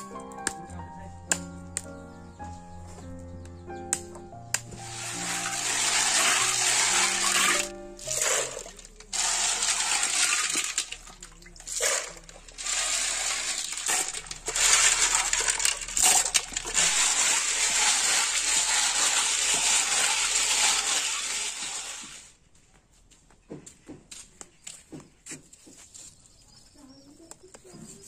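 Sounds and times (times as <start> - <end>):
water sloshing: 4.8 - 21.5.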